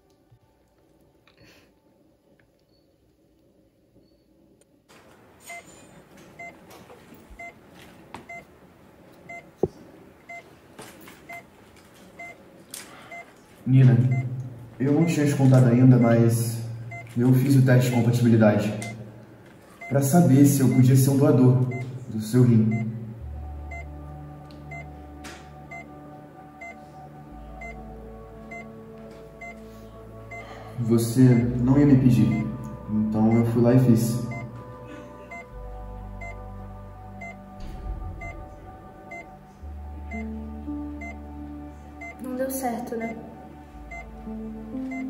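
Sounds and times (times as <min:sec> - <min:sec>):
treatment room hum: 0:00.0 - 0:42.4
medical monitor beeping: 0:05.4 - 0:08.5, 0:09.2 - 0:10.5, 0:11.2 - 0:22.1, 0:22.7 - 0:23.0, 0:23.7 - 0:24.0, 0:24.6 - 0:24.9, 0:25.6 - 0:31.6, 0:32.2 - 0:35.6, 0:36.2 - 0:39.4, 0:40.0 - 0:41.3, 0:41.9 - 0:42.2, 0:43.8 - 0:45.0
soft low chords: 0:13.7 - 0:45.0.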